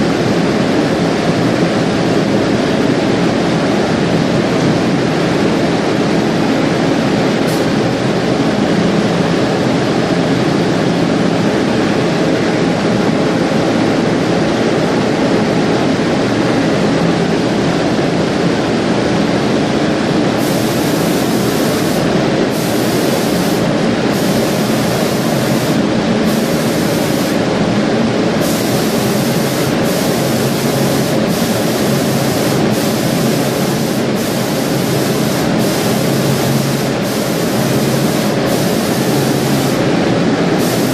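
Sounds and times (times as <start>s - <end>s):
low machine hum: 0.0s - 40.9s
spraying machine mechanical rush: 5.6s - 9.3s, 20.2s - 40.9s.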